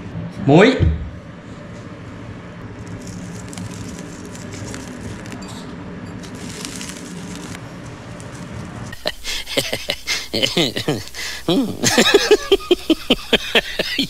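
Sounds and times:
steady low hum: 0.0s - 14.0s
seasoning crackling onto fruit: 2.8s - 5.5s, 6.1s - 11.8s.

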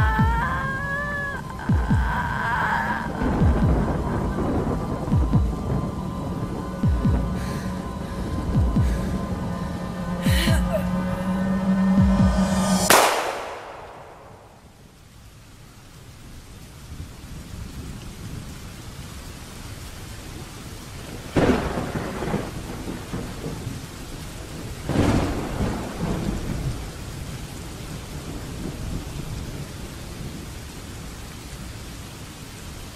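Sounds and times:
thunderclaps rumbling: 0.0s - 14.8s, 21.0s - 31.1s
heavy rain: 0.0s - 32.9s.

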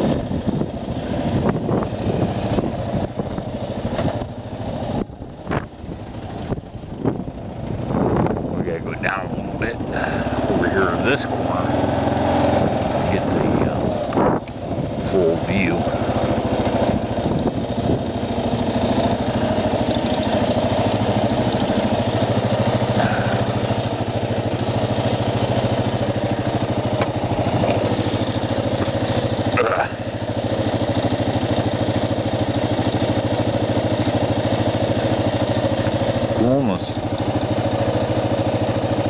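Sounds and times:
motorcycle engine idling: 0.0s - 39.0s.

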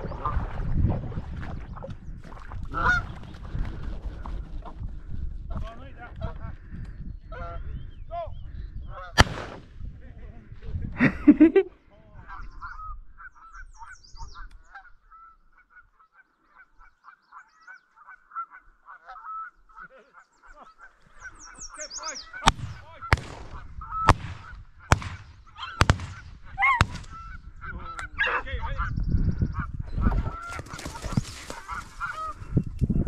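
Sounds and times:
geese honking: 2.7s - 3.2s, 12.3s - 32.6s.

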